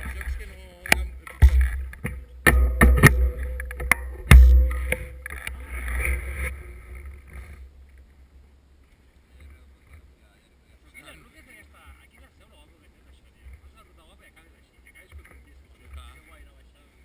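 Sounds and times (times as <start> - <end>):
bike frame rattling: 0.0 - 7.9.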